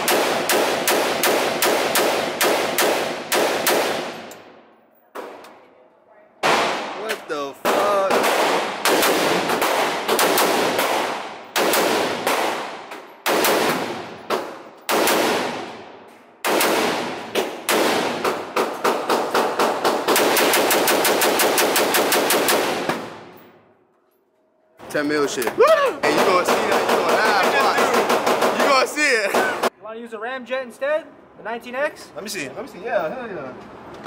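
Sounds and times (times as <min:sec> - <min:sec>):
rifle shots echoing indoors: 0:00.0 - 0:05.7, 0:06.4 - 0:23.8.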